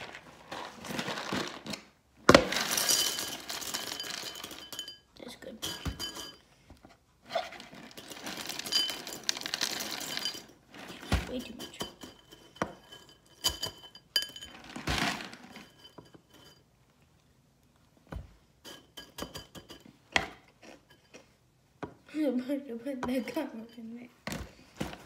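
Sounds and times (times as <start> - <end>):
dry cereal pouring into a bowl: 0.0 - 1.7, 2.4 - 4.8, 7.6 - 10.5
cereal clinking in a bowl: 0.0 - 6.4, 7.4 - 16.6.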